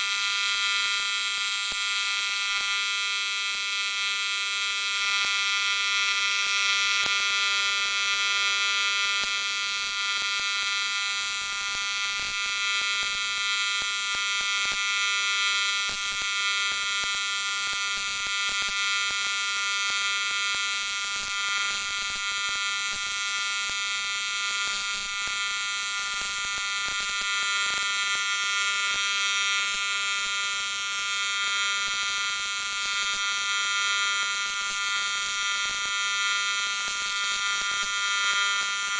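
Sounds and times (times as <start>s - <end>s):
welding arc buzzing: 0.0s - 38.9s.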